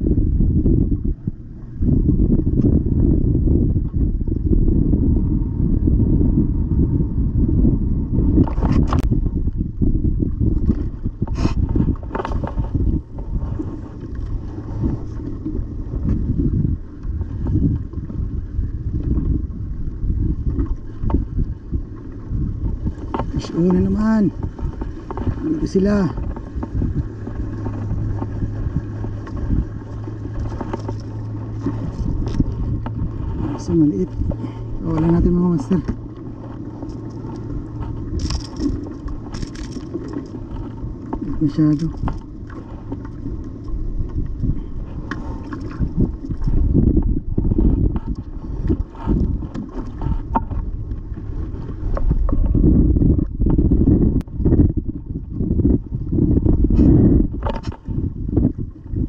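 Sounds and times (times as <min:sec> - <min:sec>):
steady low hum: 0:00.0 - 0:59.0
water around a kayak: 0:00.0 - 0:59.0
wind buffeting microphone: 0:00.0 - 0:59.0
fishing tackle clicks and knocks: 0:30.4 - 0:33.0, 0:35.8 - 0:43.7, 0:57.4 - 0:57.8.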